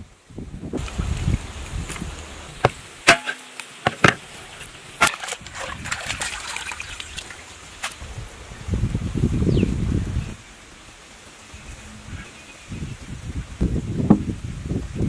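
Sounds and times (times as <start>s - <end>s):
water splashing in bowl: 3.0s - 8.0s.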